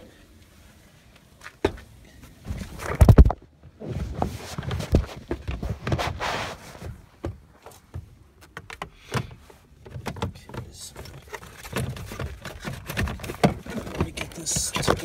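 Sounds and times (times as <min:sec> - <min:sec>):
phone handling noise: 0:02.8 - 0:03.4.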